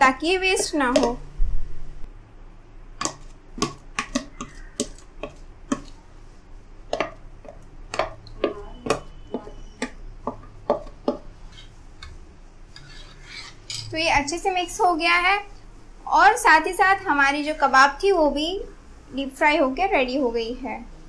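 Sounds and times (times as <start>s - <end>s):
spoon tapping and scraping container: 0.6s - 1.2s, 3.0s - 6.0s, 6.9s - 12.2s.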